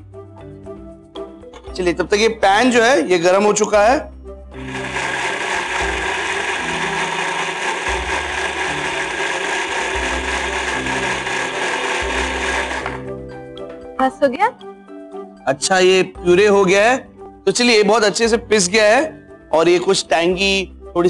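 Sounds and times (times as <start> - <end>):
mixer grinder running: 4.6 - 13.2.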